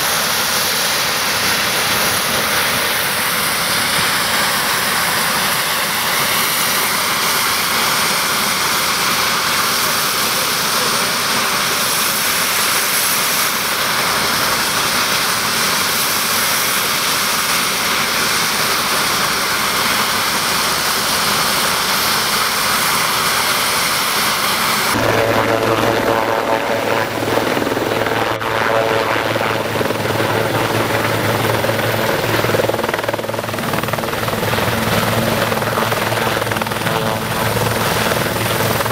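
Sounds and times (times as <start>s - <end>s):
helicopter turbine engines whining: 0.0s - 38.9s
low hum of turning rotor: 24.9s - 38.9s.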